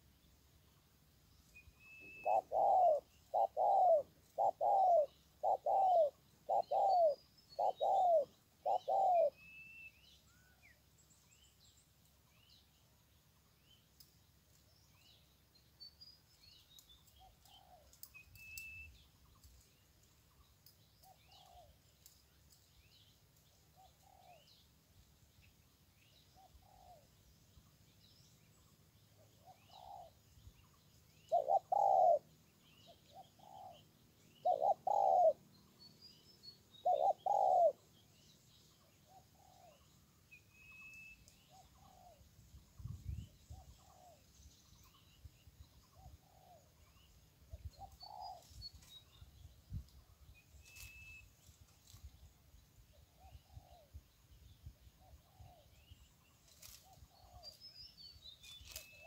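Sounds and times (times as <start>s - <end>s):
small birds chirping: 0.0s - 59.0s
bird low hooting: 1.9s - 9.7s, 29.4s - 30.2s, 31.3s - 33.8s, 34.4s - 35.5s, 36.7s - 37.8s.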